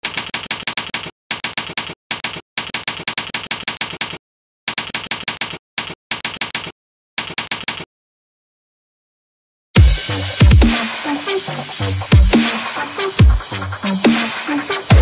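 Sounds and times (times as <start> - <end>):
rapid keyboard key clacks: 0.0 - 7.8.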